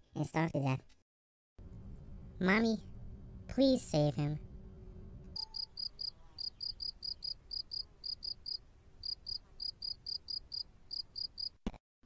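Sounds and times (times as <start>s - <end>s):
cricket chirping: 5.4s - 11.5s.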